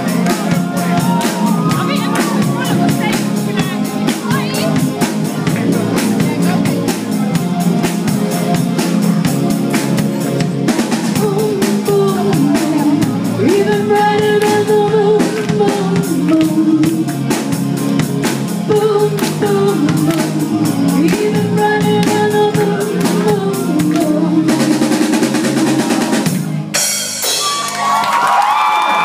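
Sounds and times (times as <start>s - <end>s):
crowd cheering and screaming: 0.0s - 2.9s, 27.2s - 29.0s
live band playing pop song: 0.0s - 29.0s.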